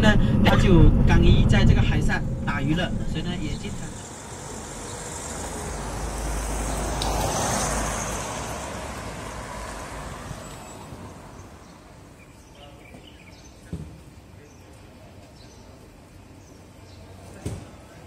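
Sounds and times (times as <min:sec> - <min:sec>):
motor vehicle passing: 0:00.0 - 0:12.1.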